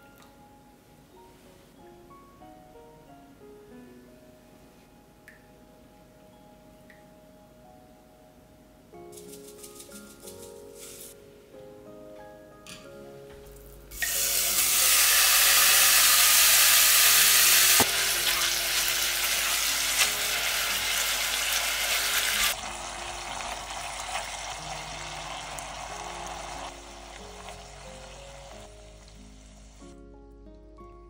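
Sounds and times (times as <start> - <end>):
soft background music: 0.0 - 31.0
meat sizzling in a pot: 13.9 - 29.9.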